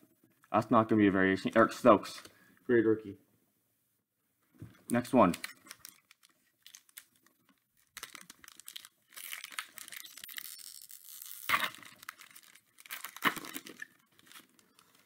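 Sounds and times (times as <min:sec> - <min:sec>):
wrapper tearing and crinkling: 0:05.2 - 0:15.0.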